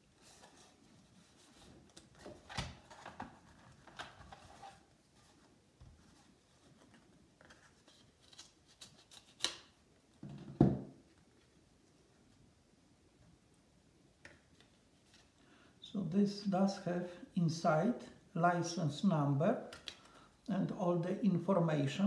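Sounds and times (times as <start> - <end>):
paper rustling: 0.2 - 9.7.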